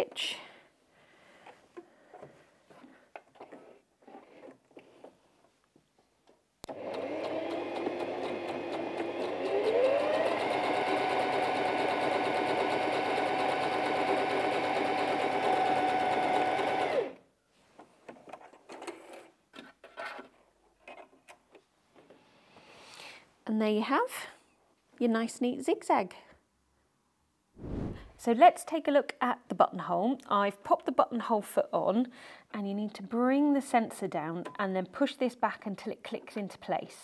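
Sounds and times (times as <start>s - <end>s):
sewing machine stitching: 6.7s - 17.2s.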